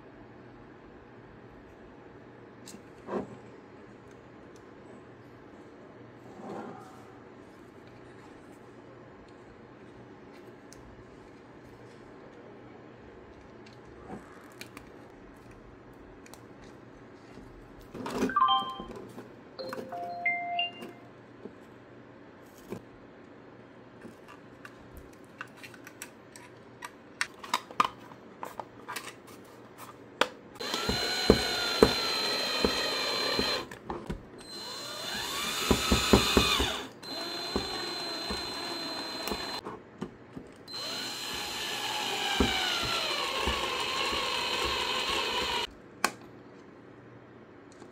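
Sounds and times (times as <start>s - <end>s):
electric screwdriver whine: 30.6s - 33.7s, 34.4s - 39.6s, 40.7s - 45.7s.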